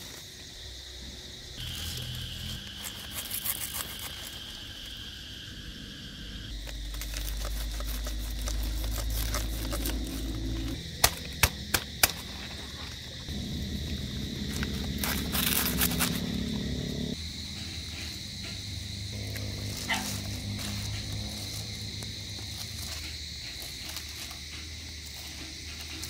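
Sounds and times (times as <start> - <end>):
insects chirping: 0.0 - 26.0
low rumble: 5.4 - 11.0, 13.0 - 23.0.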